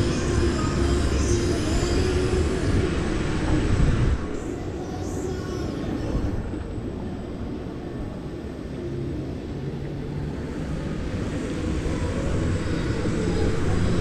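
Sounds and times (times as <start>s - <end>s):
faint hum: 0.0s - 14.0s
low rumble of ride: 0.0s - 14.0s
wind rushing over camera: 2.0s - 4.7s.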